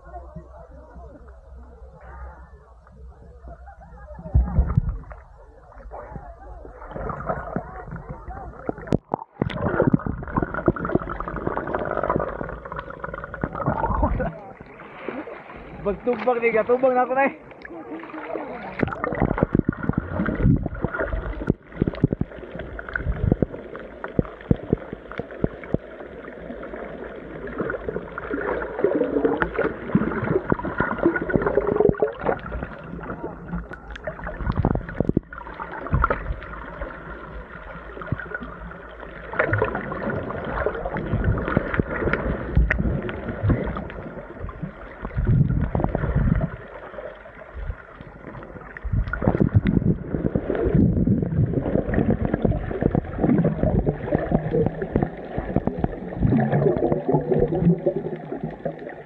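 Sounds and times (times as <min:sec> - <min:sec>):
muffled underwater rushing: 0:00.0 - 0:59.0
underwater knocks: 0:18.8 - 0:25.9, 0:29.3 - 0:32.8, 0:33.7 - 0:36.5, 0:39.4 - 0:46.6, 0:48.8 - 0:58.8.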